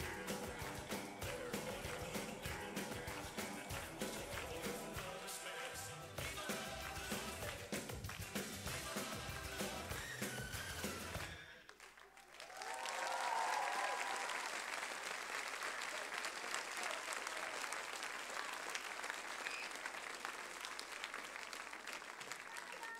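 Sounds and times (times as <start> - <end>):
audience applause: 0.0 - 22.9
cheering whoops: 9.9 - 11.2, 12.3 - 14.7.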